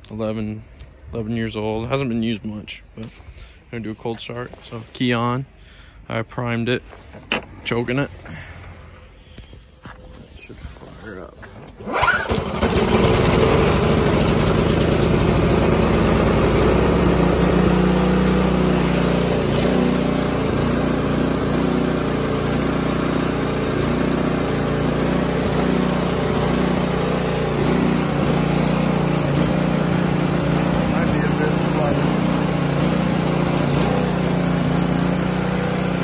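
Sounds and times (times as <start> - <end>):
snowblower engine running: 11.5 - 36.0.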